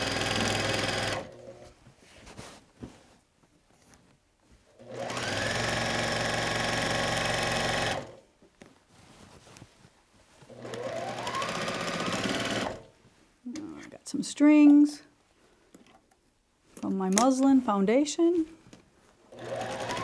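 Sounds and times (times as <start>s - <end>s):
sewing machine stitching: 0.0s - 1.6s, 4.8s - 8.2s, 10.5s - 12.9s, 19.3s - 20.0s.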